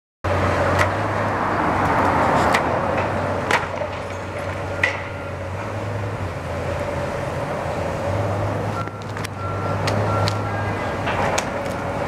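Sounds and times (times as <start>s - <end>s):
crumbling debris: 3.5s - 4.8s.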